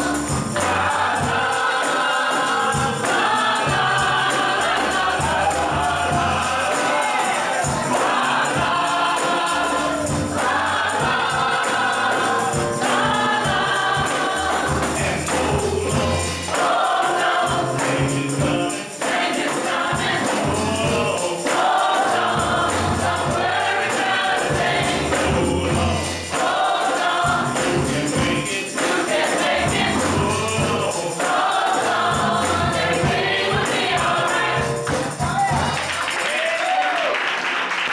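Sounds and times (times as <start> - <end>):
gospel choir singing: 0.0 - 36.8
tambourine shaken: 0.0 - 36.9
low bass accompaniment: 4.1 - 6.7, 24.6 - 26.2.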